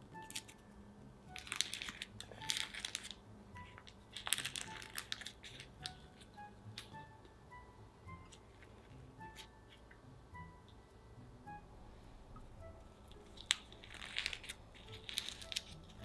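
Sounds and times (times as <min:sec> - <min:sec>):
soft background music: 0:00.0 - 0:16.0
paper liner crinkling and tearing: 0:01.4 - 0:06.9, 0:13.1 - 0:16.0.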